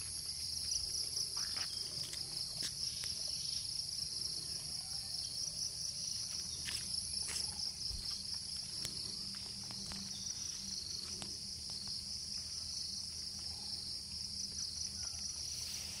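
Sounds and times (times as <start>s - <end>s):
insects chirring: 0.0s - 16.0s.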